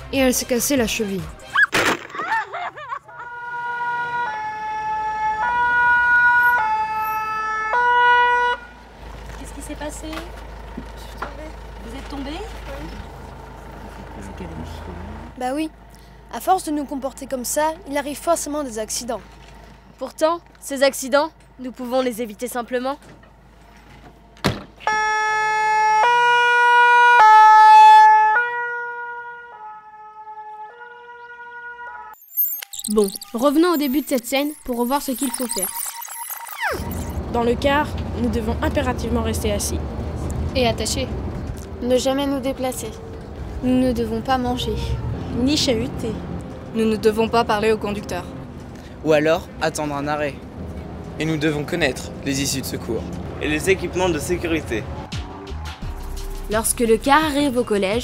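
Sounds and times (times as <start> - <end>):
two-tone emergency siren: 3.2 - 8.8, 24.8 - 32.7
thump: 24.4 - 24.8.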